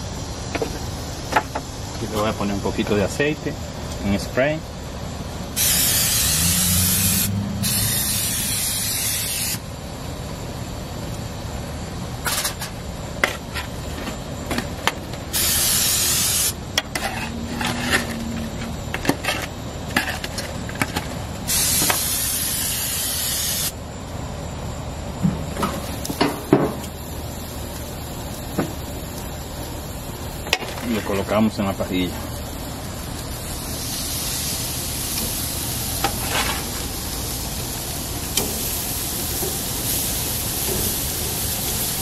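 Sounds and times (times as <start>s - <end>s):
oil spray can hissing: 5.6s - 9.7s, 15.3s - 16.6s, 21.5s - 23.7s, 33.4s - 42.0s.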